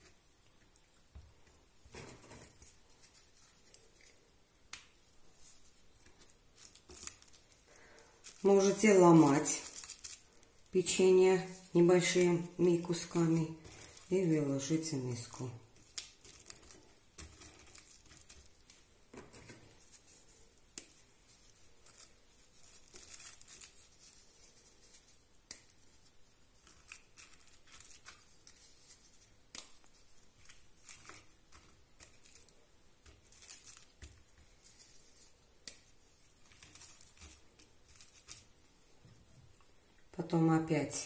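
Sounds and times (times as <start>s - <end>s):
cling film rustling: 1.9s - 38.6s
biscuits snapping: 15.8s - 19.6s.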